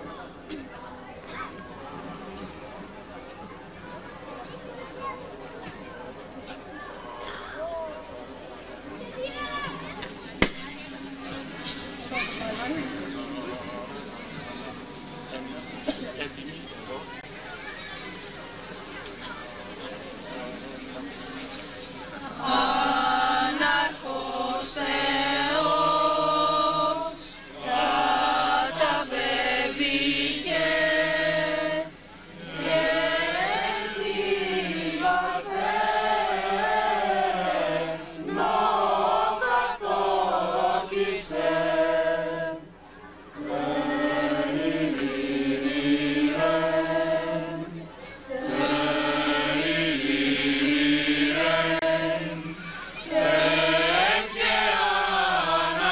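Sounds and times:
choir singing: 22.2 - 42.8, 43.4 - 55.9.

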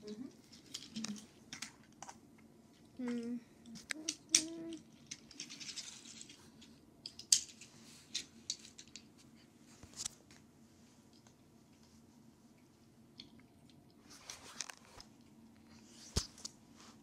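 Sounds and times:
toy car clicking on stone: 3.7 - 6.4.

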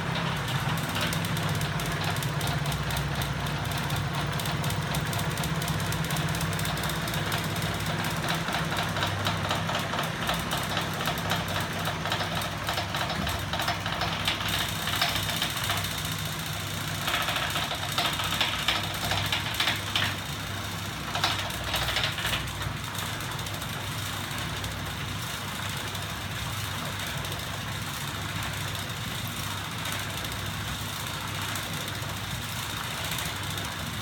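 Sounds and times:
clicking and rattling linkages: 6.5 - 16.0.

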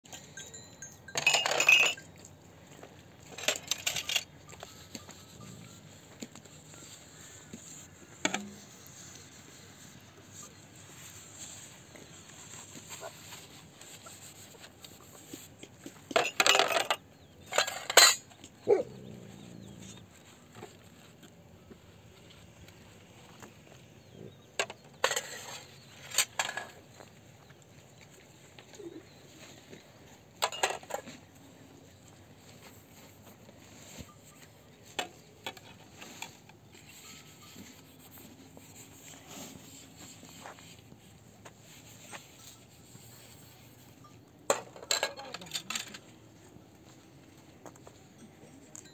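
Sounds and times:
metal pots clinking: 0.1 - 2.4, 16.1 - 18.3.

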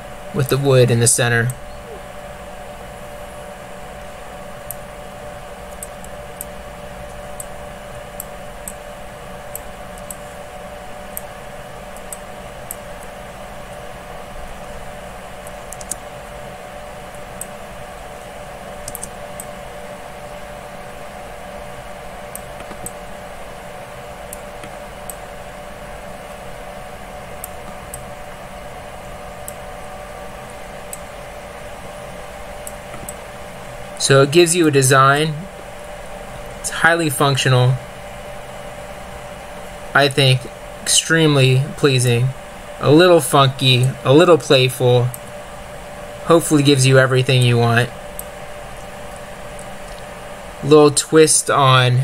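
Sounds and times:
steady background hum: 0.0 - 52.0
keyboard or mouse clicks: 15.7 - 16.0, 18.8 - 19.5, 22.4 - 23.0.

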